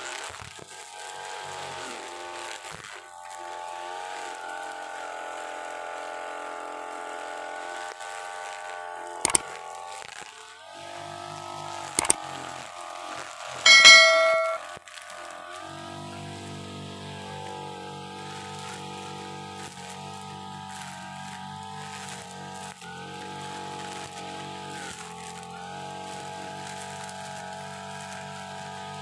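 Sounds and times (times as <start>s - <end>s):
trimmer line cutting grass: 0.0s - 13.3s, 15.6s - 29.0s
brush cutter engine running: 3.2s - 10.0s, 16.5s - 29.0s
ringing metallic clang: 13.7s - 14.6s.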